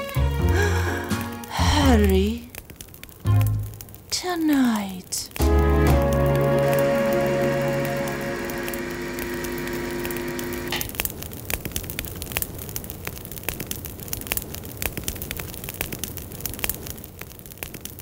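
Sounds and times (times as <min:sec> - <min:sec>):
log fire crackling: 0:00.0 - 0:18.0
held music chord: 0:05.4 - 0:10.5.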